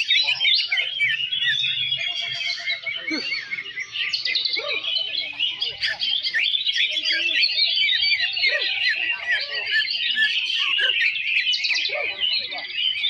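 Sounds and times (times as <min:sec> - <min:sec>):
birds singing in chorus: 0:00.0 - 0:13.0.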